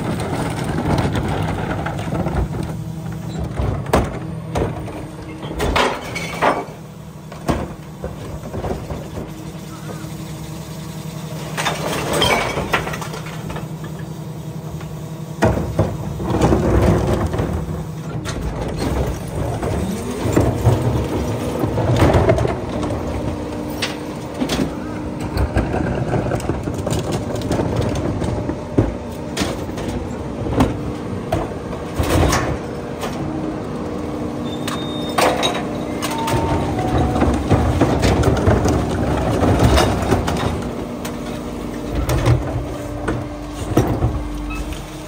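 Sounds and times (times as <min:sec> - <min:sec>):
carts banging and clattering: 0:00.0 - 0:10.2, 0:11.4 - 0:14.1, 0:15.4 - 0:45.0
garbage truck running: 0:00.0 - 0:45.0
hydraulic tones: 0:07.9 - 0:14.5.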